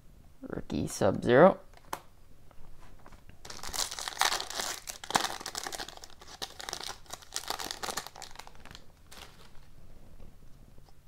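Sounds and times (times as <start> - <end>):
foil wrapper tearing and crinkling: 3.4 - 9.7.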